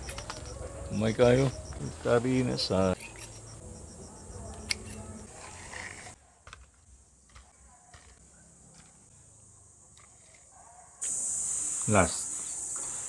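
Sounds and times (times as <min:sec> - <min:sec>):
crickets chirring: 0:00.0 - 0:06.2, 0:08.2 - 0:13.0
pruning shears snipping: 0:04.5 - 0:06.0.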